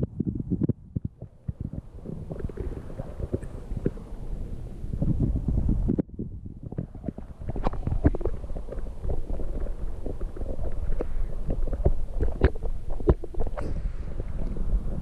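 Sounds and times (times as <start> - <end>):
muffled underwater stream rumble: 0.0 - 15.0
underwater clicks and knocks: 6.6 - 13.8.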